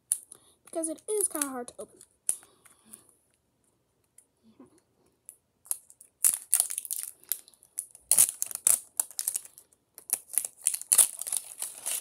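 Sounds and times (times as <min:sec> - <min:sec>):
plastic packaging crinkling and tearing: 0:05.7 - 0:12.0.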